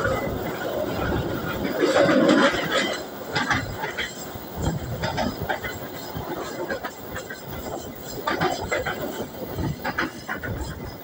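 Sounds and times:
clacks from wheels and couplings: 0.0s - 11.0s
train wheels rumbling on rails: 0.0s - 11.0s.

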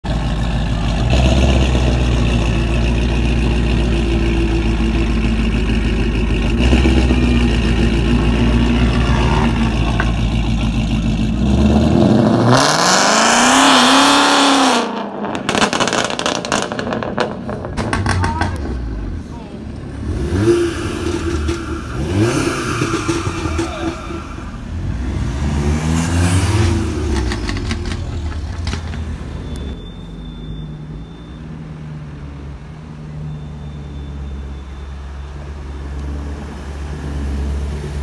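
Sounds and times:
car engine idling: 0.0s - 12.0s, 15.6s - 25.0s
exhaust crackles: 0.2s - 29.8s
car engine revving: 0.4s - 29.4s.

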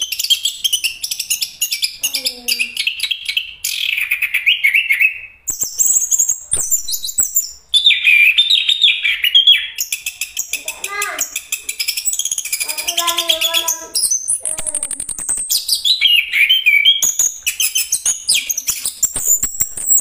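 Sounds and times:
sharp clicks: 5.5s - 7.5s, 9.8s - 16.0s, 17.0s - 20.0s.

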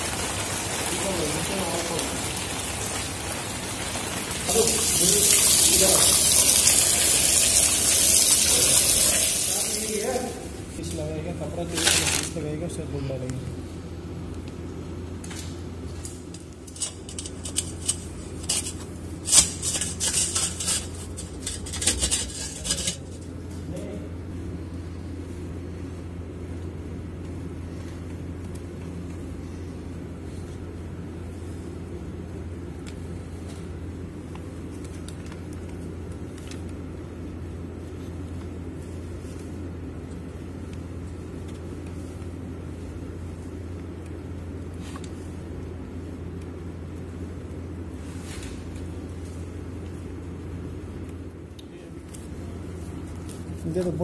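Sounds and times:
steady low hum: 0.0s - 54.0s
metal clinks and scrapes: 16.6s - 23.2s.

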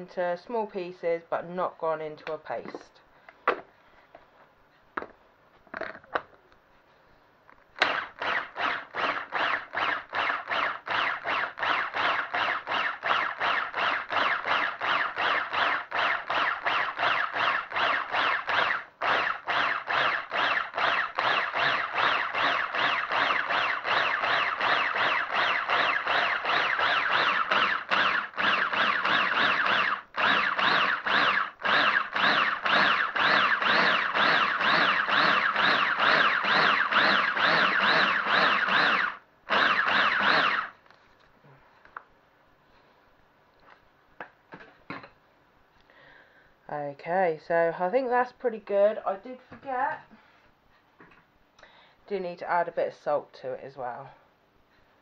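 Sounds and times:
blender motor whining: 7.8s - 40.8s.

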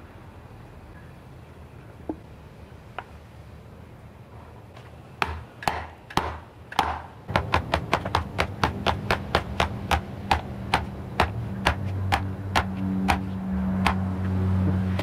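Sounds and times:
metal tube knocking on bushing: 5.2s - 14.0s.

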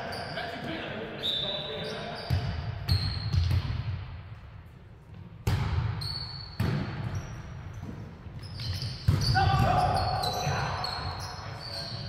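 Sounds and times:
sneakers squeaking on hardwood: 1.2s - 3.6s, 5.9s - 12.0s
volleyball hits echoing: 5.2s - 7.2s, 8.7s - 10.8s.

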